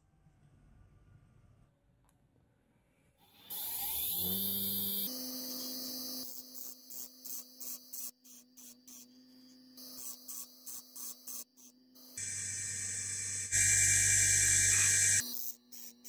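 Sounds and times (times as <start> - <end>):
bench grinder motor whine: 3.3 - 11.3, 12.0 - 15.5
drill bit grinding on wheel: 3.3 - 16.0.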